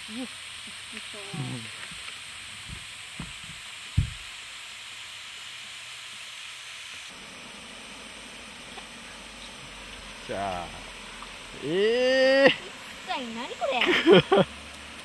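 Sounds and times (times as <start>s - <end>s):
low thumps: 2.6s - 4.3s
waterfall rushing: 7.1s - 15.0s.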